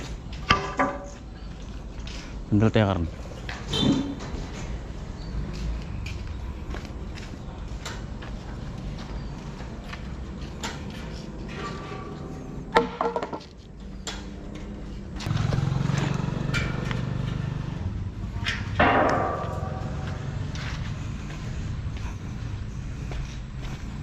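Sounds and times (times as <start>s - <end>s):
sliding metal gate clanking: 10.6s - 13.0s, 16.0s - 17.5s, 18.6s - 20.4s
sharp metallic bang: 18.7s - 20.6s.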